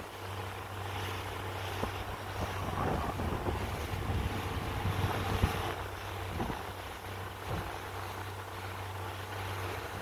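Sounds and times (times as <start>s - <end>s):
boat engine drone: 0.0s - 10.0s
hull slapping waves: 0.0s - 10.0s
wind on microphone: 1.6s - 8.1s.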